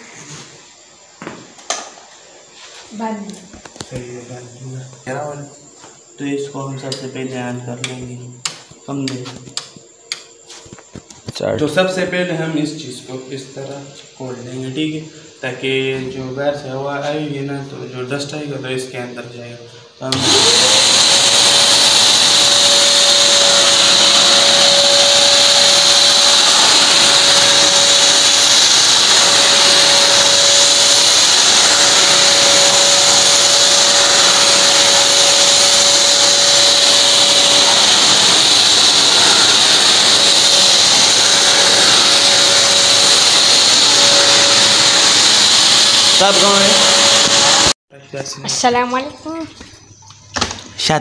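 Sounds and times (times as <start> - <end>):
vacuum cleaner suction rush: 20.1 - 47.8
vacuum motor whine: 20.1 - 47.8.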